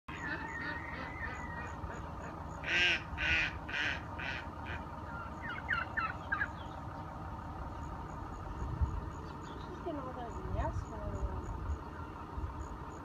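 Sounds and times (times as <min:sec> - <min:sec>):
bird giving harsh calls: 0:00.1 - 0:06.9.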